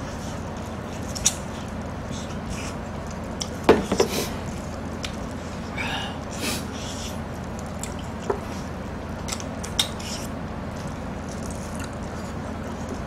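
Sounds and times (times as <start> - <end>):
low background hum: 0.0 - 13.0
wet chewing: 4.4 - 13.0.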